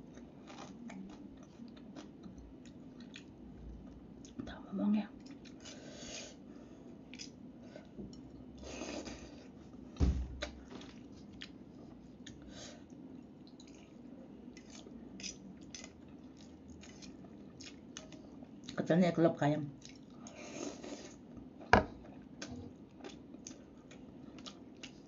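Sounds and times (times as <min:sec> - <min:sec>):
chewing noodles: 0:10.7 - 0:18.8.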